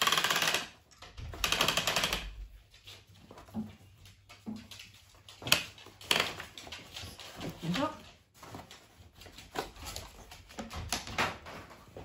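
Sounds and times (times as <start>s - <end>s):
loom ratchet clicking: 0.0s - 2.2s.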